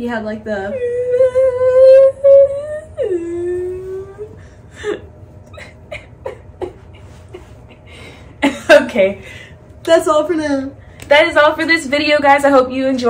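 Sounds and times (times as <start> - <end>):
woman wailing: 0.7 - 6.6.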